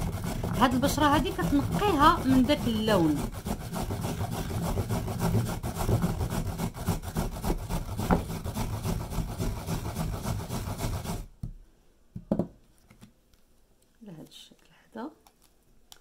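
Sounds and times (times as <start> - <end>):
carrot rasping on grater: 0.0 - 11.3.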